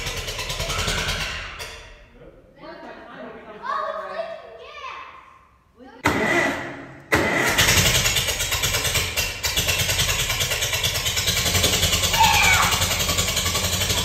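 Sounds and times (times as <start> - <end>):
tractor engine running: 0.0 - 1.7, 6.1 - 14.0.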